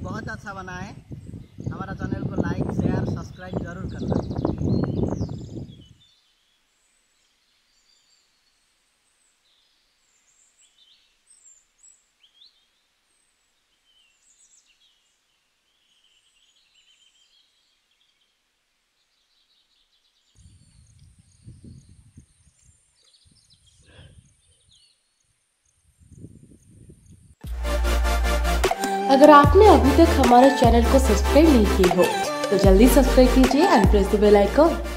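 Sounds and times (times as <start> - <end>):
birds chirping: 0.0 - 18.4, 28.8 - 34.9.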